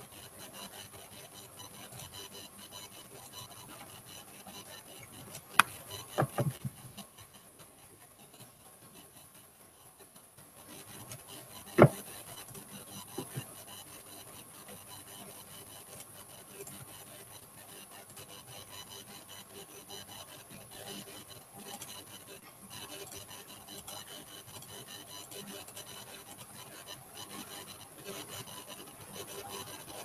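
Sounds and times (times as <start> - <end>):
sharp clicks and knocks: 5.5 - 6.8, 11.8 - 12.0.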